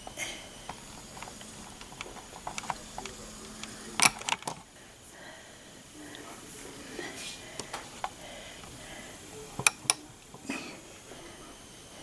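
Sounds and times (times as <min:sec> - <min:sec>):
faint steady hum: 0:00.0 - 0:12.0
handling clicks and taps: 0:00.7 - 0:04.6, 0:09.6 - 0:10.4.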